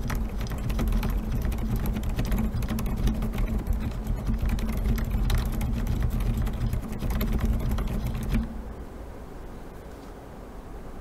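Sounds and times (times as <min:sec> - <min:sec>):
fast typing on mechanical keyboard: 0:00.0 - 0:08.5
faint steady hiss: 0:00.0 - 0:11.0.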